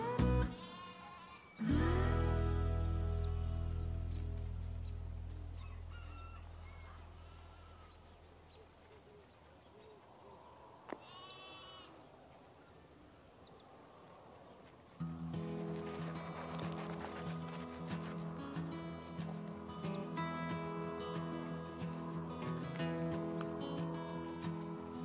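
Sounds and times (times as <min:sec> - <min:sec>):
background music: 0:00.0 - 0:04.8, 0:15.0 - 0:25.0.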